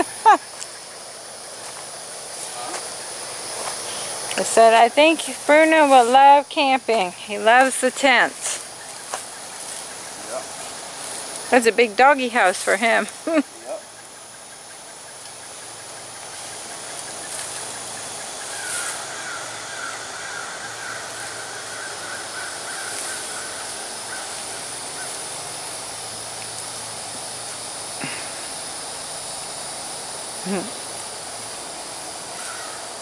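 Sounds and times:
thin high steady tone: 0.0s - 14.5s
buzzing drone: 0.0s - 33.0s
steady hiss: 0.0s - 33.0s.

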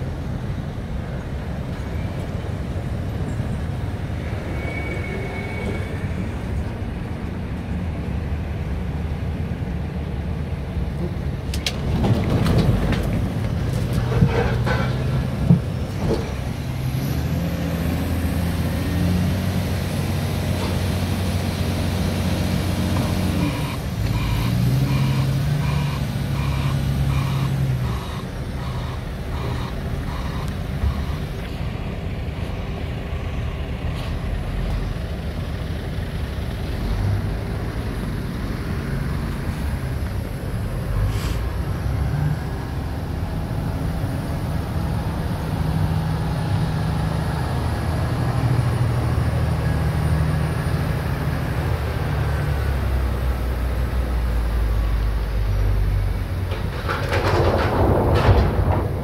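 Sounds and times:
heavy diesel engine revving: 16.4s - 31.3s
reversing alarm beeping: 23.4s - 31.3s.

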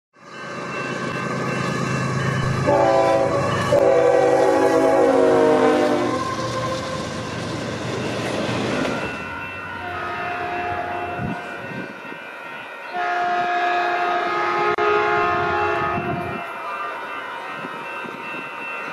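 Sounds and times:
diesel locomotive engine drone: 0.2s - 18.9s
railroad crossing bell ringing: 0.2s - 18.9s
train air horn: 2.6s - 7.1s, 9.8s - 11.4s, 12.9s - 16.5s.

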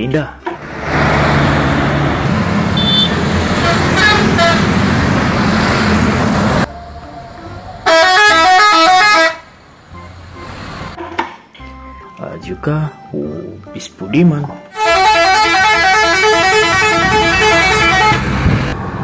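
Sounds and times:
busy road traffic: 0.4s - 11.5s, 14.7s - 19.0s
bus musical horn tune: 2.7s - 5.2s, 6.7s - 10.4s, 14.7s - 18.6s
short horn toots: 2.8s - 4.7s.

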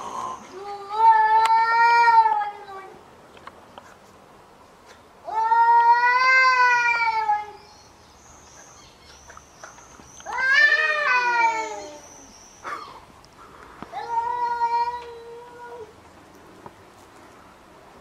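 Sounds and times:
cat yowling: 10.3s - 12.0s.

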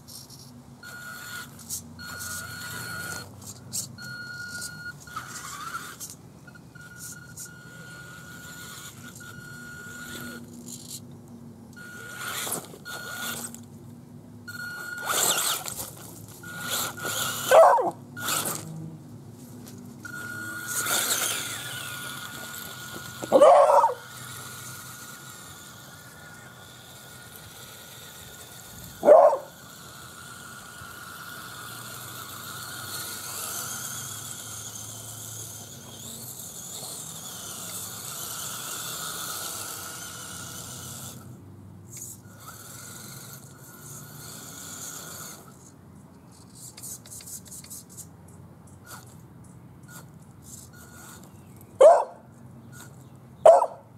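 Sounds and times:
electric motor high whine: 0.8s - 11.0s, 11.7s - 13.6s, 14.5s - 19.0s, 19.7s - 41.3s
dog barking: 17.5s - 18.0s, 23.3s - 24.0s, 29.0s - 29.5s, 51.8s - 52.2s, 53.4s - 53.8s.

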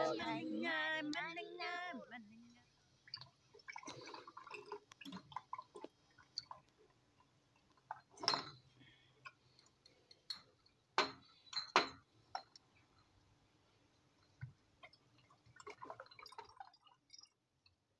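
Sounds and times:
liquid trickling through funnel: 3.0s - 6.8s, 14.3s - 17.4s
glass bottles clinking on metal funnel: 8.0s - 8.7s, 10.2s - 12.5s.

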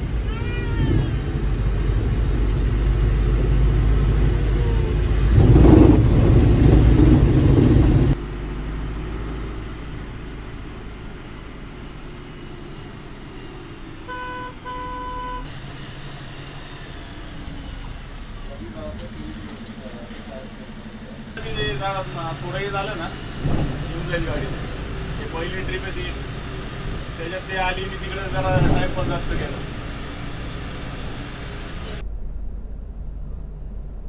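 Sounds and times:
engine and road rumble: 0.0s - 34.0s
vehicle horn tooting: 14.0s - 15.5s.

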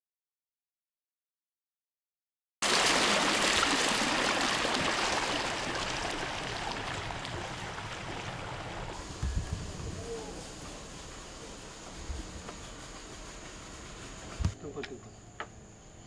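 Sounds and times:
water rushing along canoe hull: 2.6s - 9.6s.

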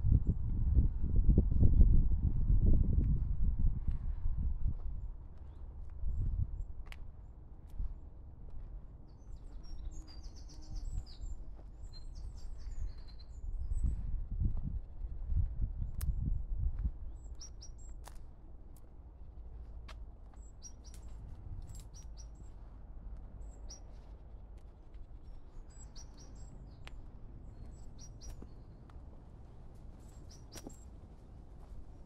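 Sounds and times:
small birds chirping: 5.4s - 14.1s, 17.0s - 18.9s, 20.2s - 32.0s.

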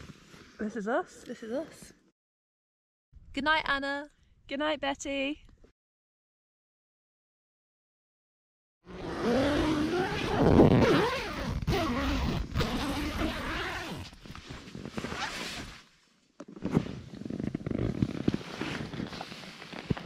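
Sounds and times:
tent zip pulled open: 8.9s - 20.0s
nylon fabric rustling: 10.9s - 15.9s, 16.8s - 20.0s.

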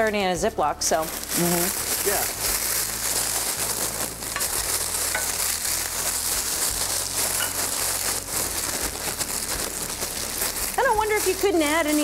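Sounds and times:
cereal crackling: 0.8s - 12.0s
crinkling plastic bag: 0.8s - 12.0s
pan sizzling: 0.9s - 12.0s.

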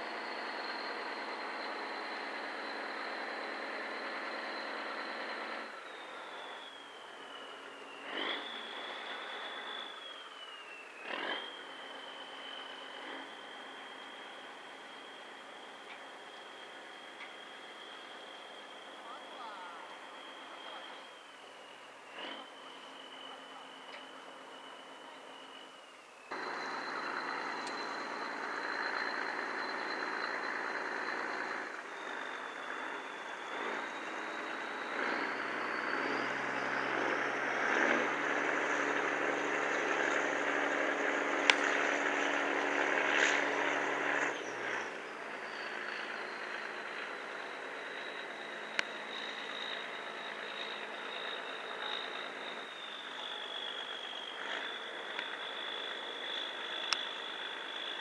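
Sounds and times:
high whine: 0.0s - 58.0s
boat diesel engine running: 26.3s - 58.0s.

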